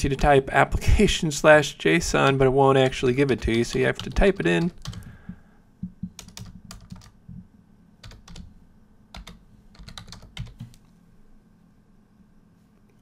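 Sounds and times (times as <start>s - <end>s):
keyboard typing clicks: 5.8s - 7.2s, 9.2s - 10.8s.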